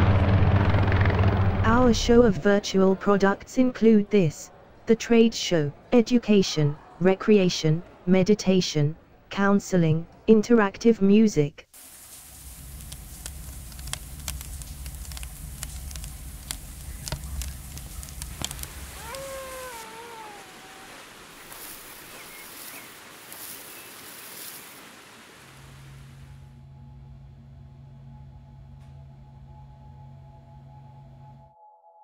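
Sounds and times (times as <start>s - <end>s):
low rumble: 0.0s - 2.4s, 12.3s - 19.0s
low steady hum: 8.8s - 22.1s
fire crackling: 11.7s - 26.3s
steady high hiss: 11.7s - 26.4s
faint chirps: 16.4s - 24.7s
cat meowing: 18.5s - 21.9s.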